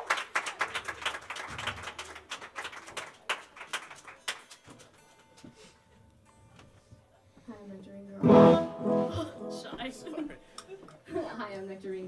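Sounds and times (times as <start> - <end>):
audience clapping: 0.0 - 4.9.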